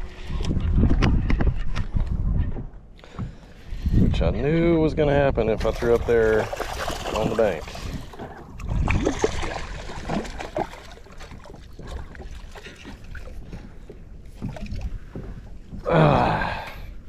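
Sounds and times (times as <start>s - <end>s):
fish splashing in water: 5.7s - 13.4s.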